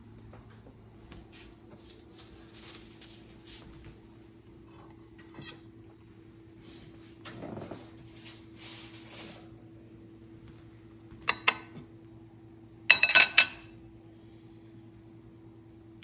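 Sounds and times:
low steady hum: 0:00.0 - 0:16.0
metal spatula clinking on plate: 0:12.9 - 0:13.7.

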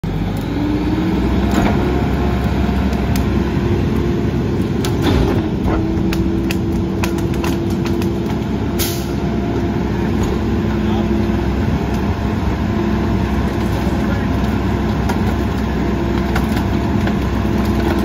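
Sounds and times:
garbage truck humming: 0:00.0 - 0:18.0
branches cracking and snapping: 0:00.2 - 0:08.8, 0:11.8 - 0:12.2, 0:13.1 - 0:18.0.

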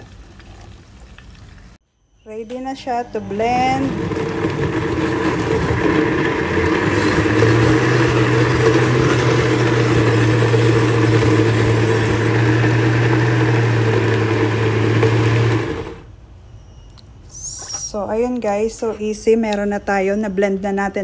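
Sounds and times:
blender motor running: 0:03.5 - 0:16.0.

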